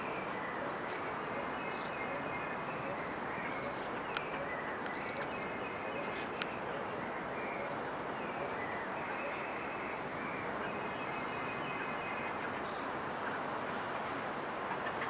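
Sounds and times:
faint distant birdsong: 0.0 - 15.0
outdoor background noise: 0.0 - 15.0
high-pitched bird chirps: 4.9 - 5.5.

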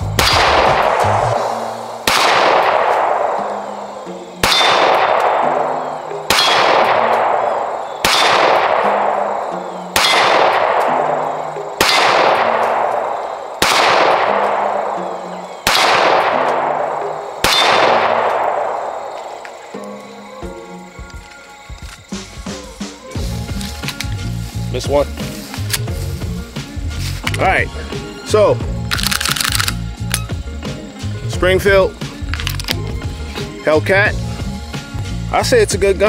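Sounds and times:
pistol shots ringing: 0.2 - 1.4, 2.0 - 3.7, 4.4 - 15.0, 15.6 - 19.0.

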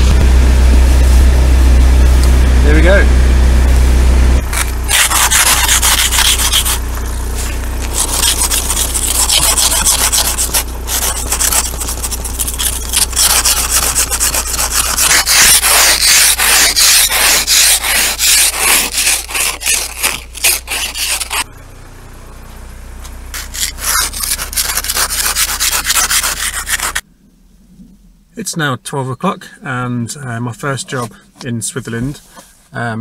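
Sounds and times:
steady low hum: 0.0 - 33.0
ice scraper scraping windows: 4.4 - 21.5, 23.3 - 27.0.

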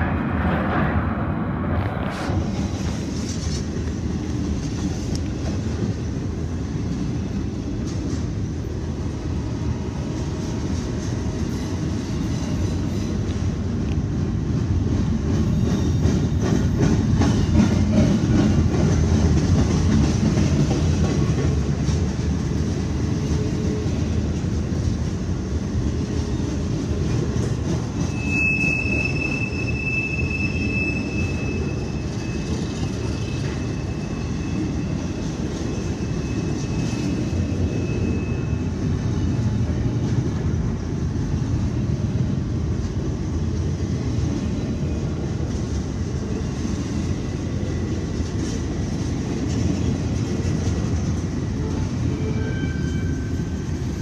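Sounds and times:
freight train rumble: 0.0 - 54.0
high wheel squeal: 28.0 - 39.6, 51.6 - 54.0.

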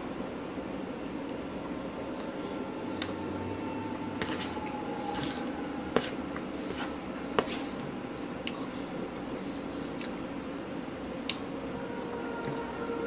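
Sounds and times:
steady room hum: 0.0 - 13.0
chewing: 6.8 - 10.2.

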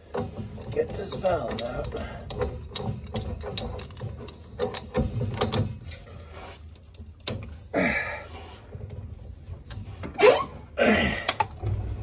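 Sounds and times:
wrench clicking and scraping on pipe: 0.0 - 7.6.

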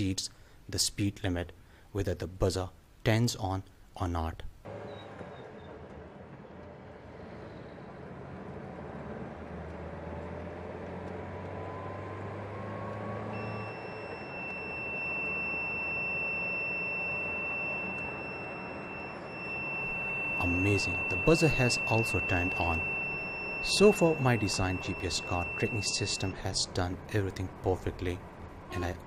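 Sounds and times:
car engine and tyre noise: 4.6 - 29.0
high-pitched buzzer tone: 13.3 - 26.4, 28.7 - 29.0.

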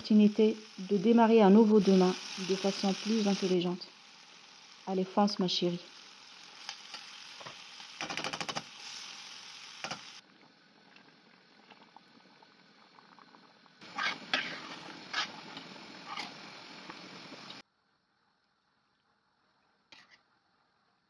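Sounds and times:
food sizzling in a frying pan: 0.0 - 10.2, 12.4 - 17.6
pot of water boiling: 0.0 - 21.0
metal spoon scraping pan: 13.8 - 15.3.

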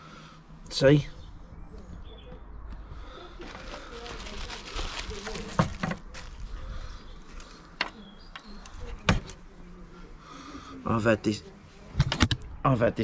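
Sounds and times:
soft bag rustling: 3.1 - 7.8.

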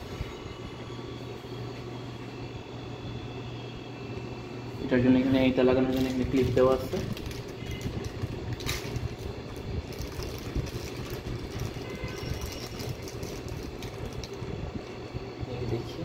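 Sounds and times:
low background hum: 0.0 - 16.0
plastic rustling: 5.8 - 14.5.

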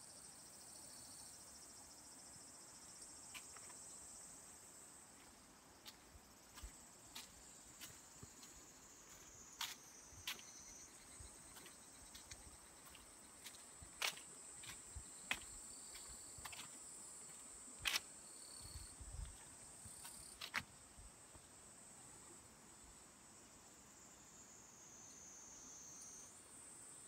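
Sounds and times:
insects trilling: 0.0 - 20.9.

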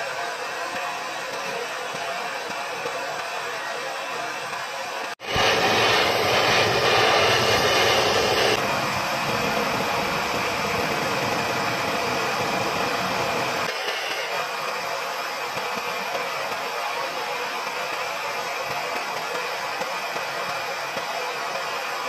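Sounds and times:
gas torch flame hissing: 5.2 - 15.8.

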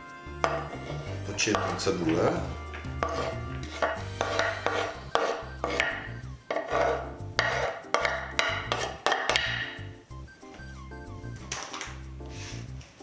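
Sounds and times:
spoon scraping wooden board: 0.4 - 9.8.

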